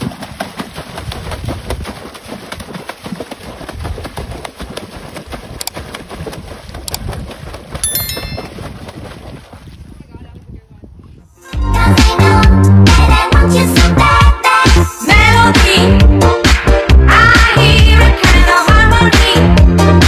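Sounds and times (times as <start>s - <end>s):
dog paddling and splashing: 0.0s - 7.8s, 8.4s - 10.0s.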